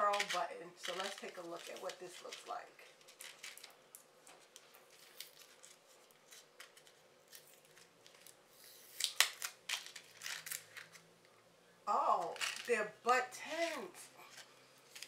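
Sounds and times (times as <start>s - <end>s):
plastic packet crinkling: 0.0s - 11.1s, 12.2s - 12.8s.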